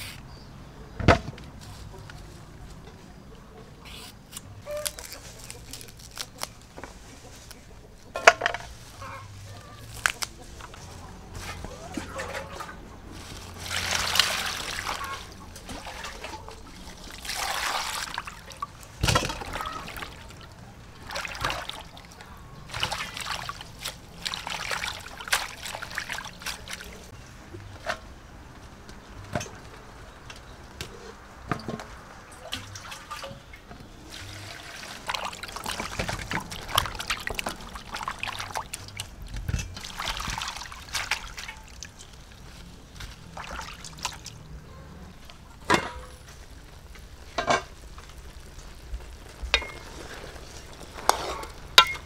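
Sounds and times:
water swishing and splashing: 8.7s - 27.2s, 31.5s - 52.0s.

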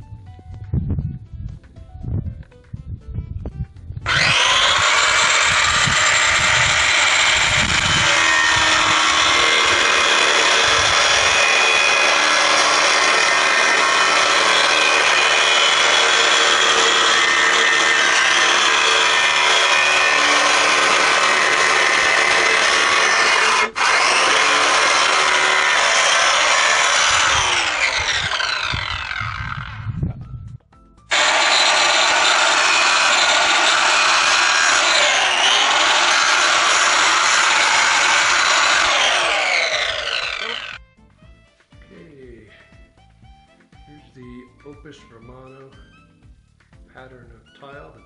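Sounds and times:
power saw cutting plaster: 4.0s - 29.8s, 31.1s - 40.8s.

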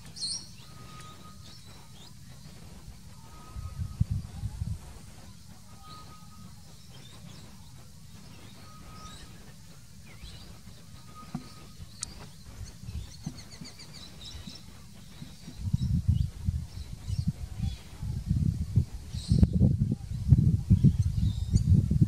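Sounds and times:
bird chirps and whistles: 0.0s - 2.6s, 5.7s - 17.2s
bird trill: 0.0s - 4.4s, 5.3s - 17.8s
steady low rumble: 0.0s - 22.0s.

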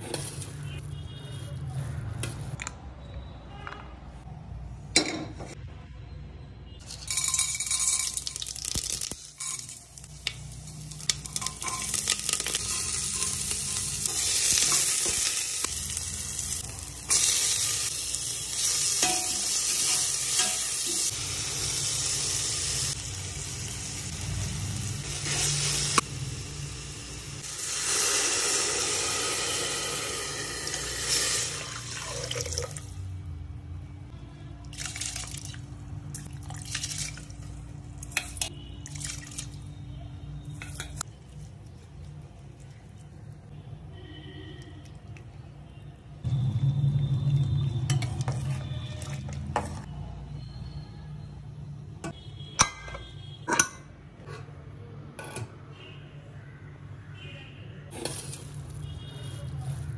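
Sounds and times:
oil sizzling: 6.9s - 33.1s.

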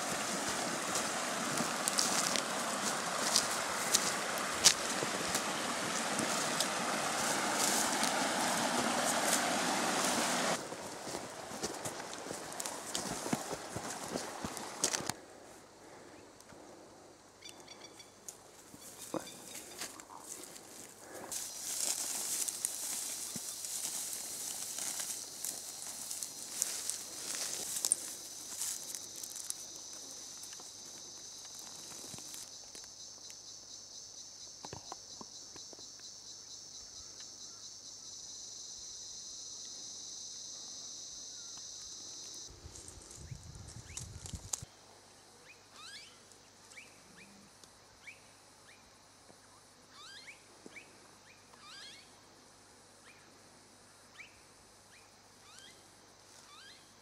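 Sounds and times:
creek rushing over rocks: 0.0s - 15.1s
footsteps crunching through leaves: 0.0s - 15.2s, 18.8s - 30.5s
high insect drone: 0.0s - 57.0s.

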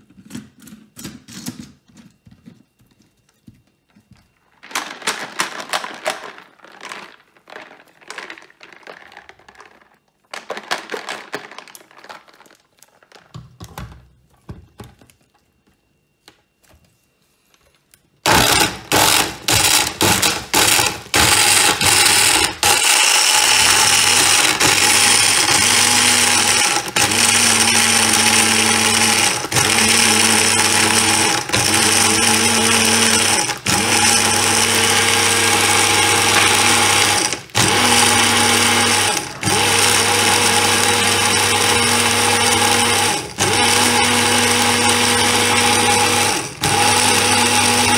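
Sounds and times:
jug and ingredients clicking: 3.5s - 15.1s, 18.3s - 47.9s
blender running: 18.3s - 47.9s.

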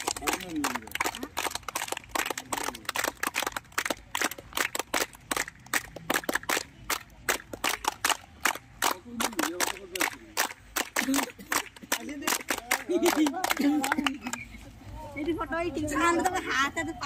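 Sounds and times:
group clapping hands: 0.0s - 14.5s.

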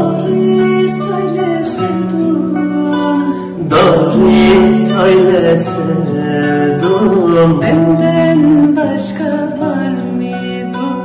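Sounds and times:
acoustic guitar strumming: 0.0s - 11.0s
woman and man singing duet: 0.0s - 11.0s.

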